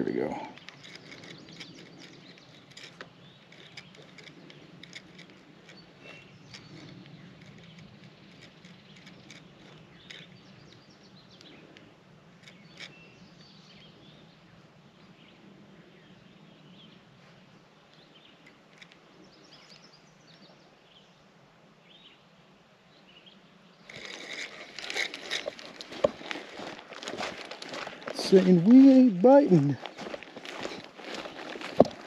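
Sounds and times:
bird chirps: 0.1s - 11.8s.

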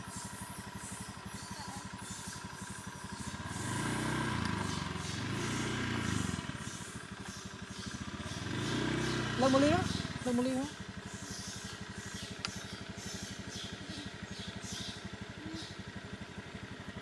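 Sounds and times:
scooter engine idling and revving: 0.0s - 17.0s.

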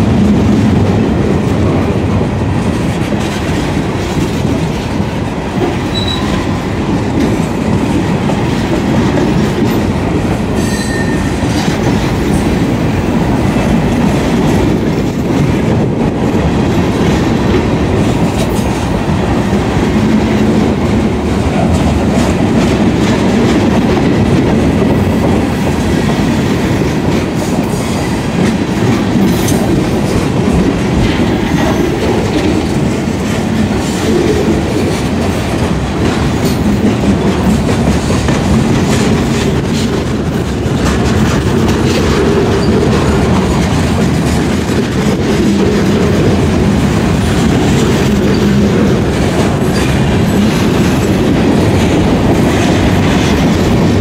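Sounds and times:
train wheels rumbling on rail: 0.0s - 54.0s.

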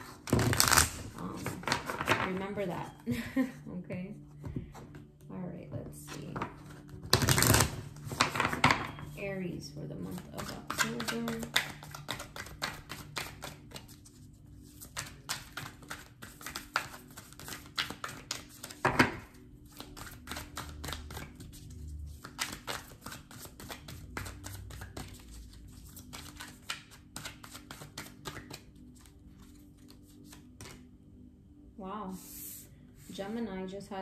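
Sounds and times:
cards being shuffled: 0.0s - 2.4s, 6.4s - 9.2s, 10.0s - 30.8s
faint background music: 0.0s - 34.0s.

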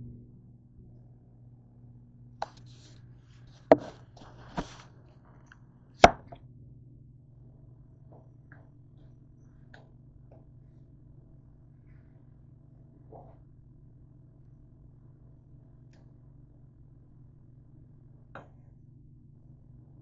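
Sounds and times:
steady low hum: 0.0s - 20.0s
camera knocking on countertop: 3.7s - 4.7s.

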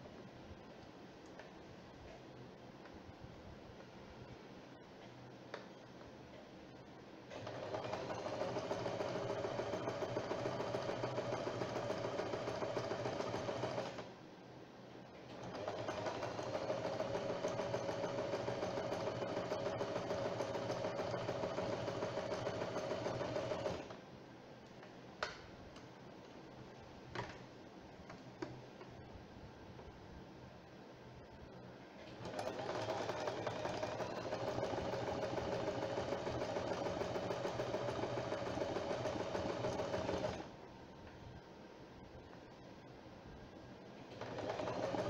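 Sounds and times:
sewing machine stitching: 7.3s - 14.1s, 15.3s - 24.0s, 32.0s - 40.5s, 44.0s - 45.0s.

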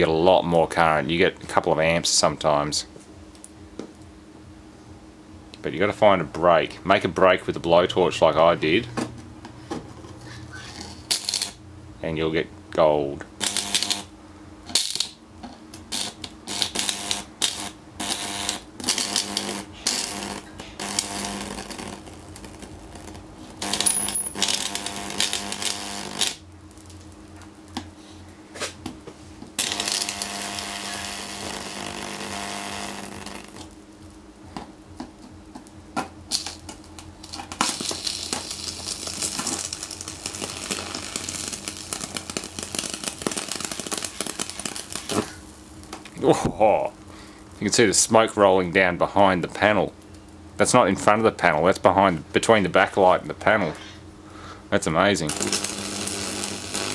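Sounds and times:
electric arc crackling: 10.5s - 28.0s, 28.6s - 53.6s, 54.8s - 56.9s.

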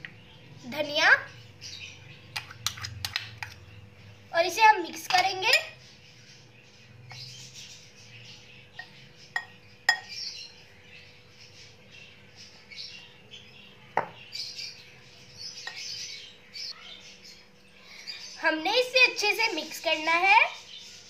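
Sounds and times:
spoon clinking against glass: 8.8s - 10.2s.

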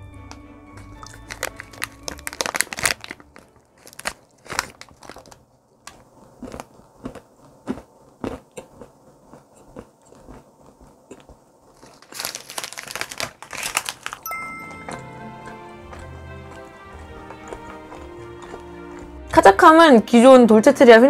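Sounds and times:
crunchy chewing: 0.8s - 14.3s, 14.9s - 19.4s
paper wrapper rustling: 1.0s - 5.5s, 11.7s - 14.3s.

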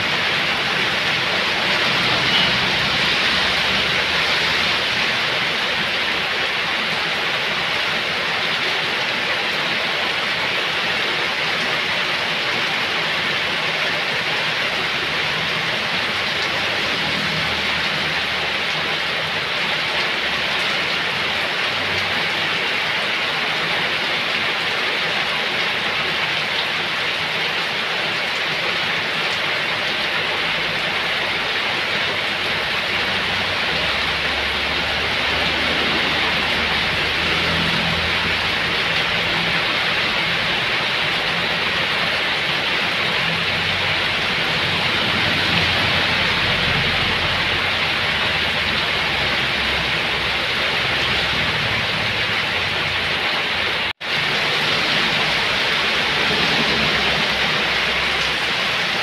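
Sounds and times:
heavy rain pouring: 0.0s - 59.0s.

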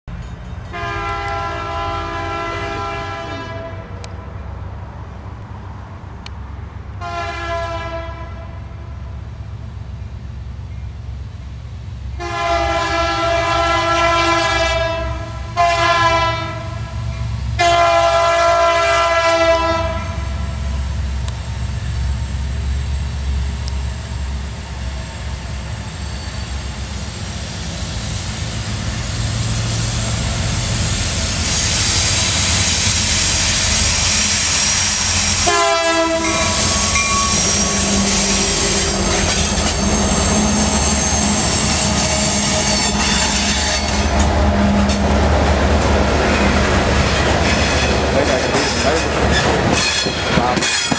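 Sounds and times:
train wheels on rails: 0.1s - 1.6s, 16.5s - 50.9s
diesel locomotives rumbling: 0.1s - 50.9s
locomotive air horn blasts: 0.7s - 3.9s, 7.0s - 8.8s, 12.2s - 20.7s, 35.3s - 39.0s.

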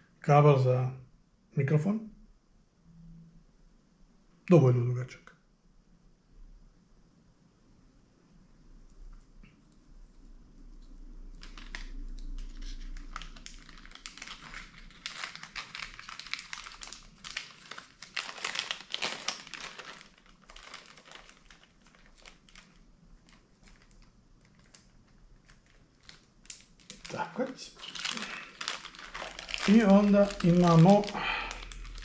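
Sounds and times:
plastic bag crinkling: 11.3s - 32.0s.

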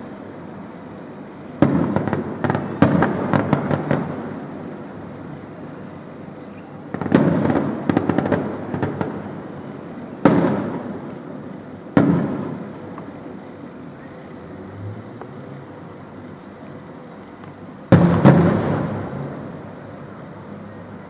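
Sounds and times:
fireworks crackling bangs: 1.5s - 5.9s, 6.8s - 13.4s, 16.7s - 20.1s
fireworks booms echoing: 1.6s - 4.6s, 6.9s - 9.6s, 10.2s - 12.8s, 17.9s - 19.7s.

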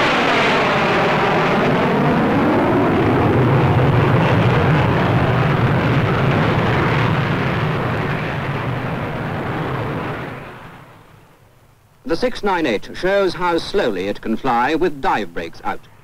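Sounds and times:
jet bomber flying past: 0.0s - 11.4s.

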